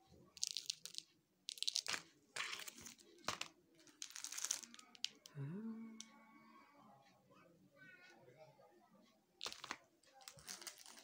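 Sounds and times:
plastic packets crinkling: 0:09.4 - 0:11.0.

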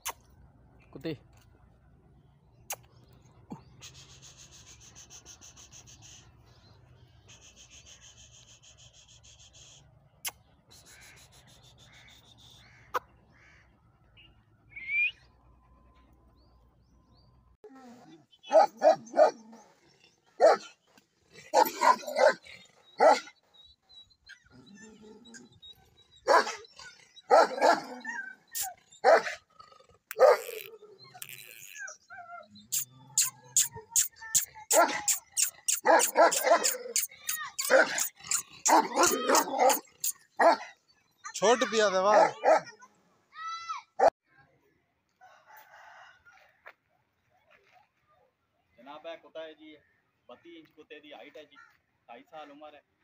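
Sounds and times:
large dog barking deeply: 0:18.5 - 0:19.8, 0:21.4 - 0:23.3, 0:26.2 - 0:28.3, 0:29.0 - 0:29.5, 0:35.8 - 0:36.9, 0:37.6 - 0:40.8, 0:42.1 - 0:42.8.

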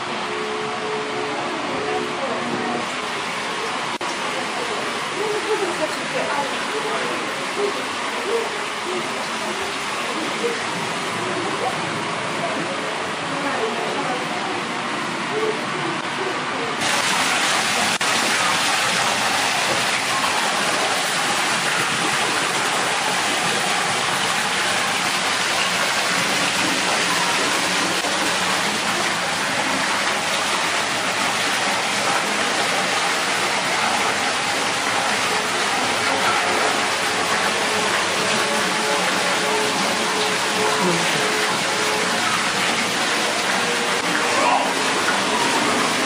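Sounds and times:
waterfall splashing into pool: 0:16.8 - 0:46.0.

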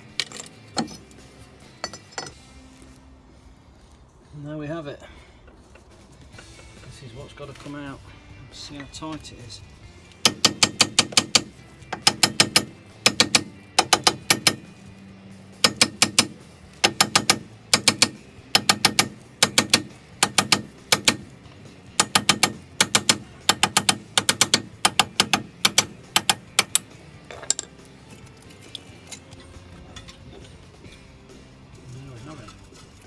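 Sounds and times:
ratchet wrench clicking: 0:10.2 - 0:14.7, 0:15.6 - 0:21.3, 0:22.0 - 0:27.8.

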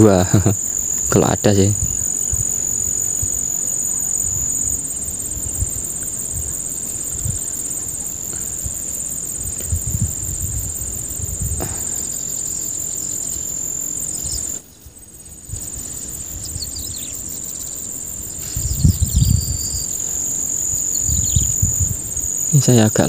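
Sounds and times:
insects shrilling: 0:00.0 - 0:23.0
bird chirps: 0:16.4 - 0:22.9.

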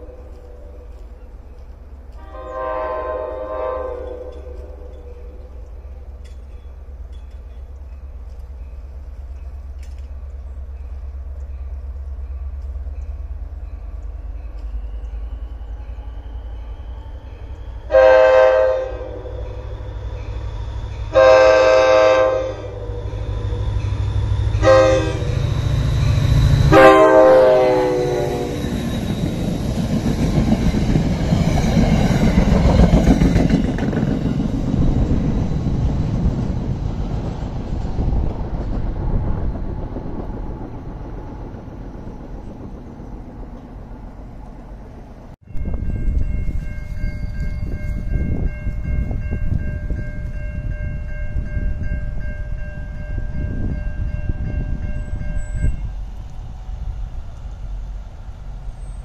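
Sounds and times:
diesel locomotive engine: 0:00.0 - 0:59.0
train cars rumbling and clattering: 0:00.0 - 0:59.0
locomotive horn blasts: 0:02.2 - 0:05.0, 0:17.9 - 0:19.9, 0:21.0 - 0:23.5, 0:24.5 - 0:28.7.

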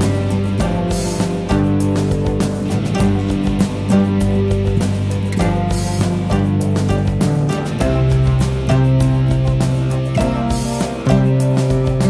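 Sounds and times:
background music with held chords: 0:00.0 - 0:12.0.

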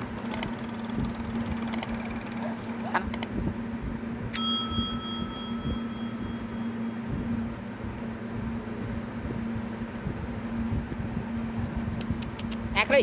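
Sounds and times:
road noise: 0:00.0 - 0:13.0
vehicle engine humming: 0:00.0 - 0:13.0
high chirp: 0:04.4 - 0:06.9.

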